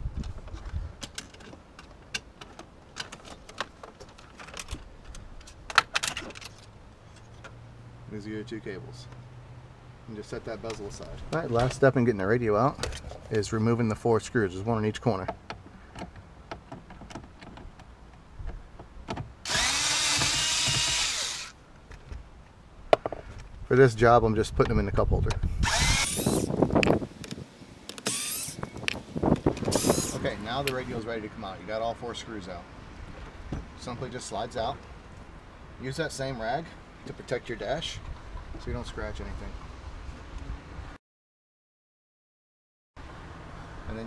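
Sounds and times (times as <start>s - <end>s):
cordless screwdriver motor: 19.5s - 21.6s, 25.6s - 26.5s, 28.0s - 28.7s, 29.6s - 30.2s.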